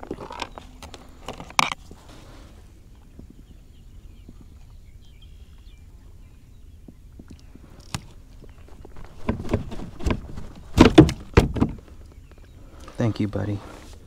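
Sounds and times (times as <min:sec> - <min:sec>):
fish thumping against kayak hull: 0:09.0 - 0:11.8.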